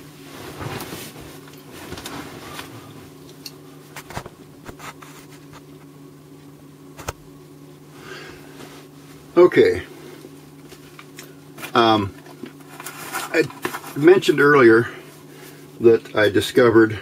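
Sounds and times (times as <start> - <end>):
low electrical buzzing hum: 0.0 - 17.0
soft rustling: 0.1 - 3.3.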